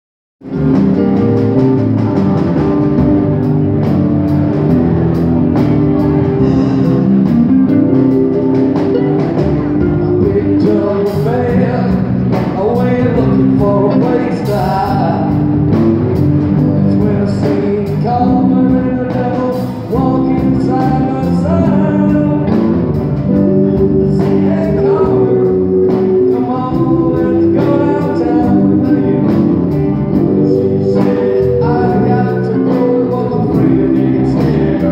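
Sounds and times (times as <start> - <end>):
drum kit: 0.4 - 34.9
electric guitars: 0.4 - 34.9
man singing into a microphone: 9.8 - 15.6, 16.6 - 34.9.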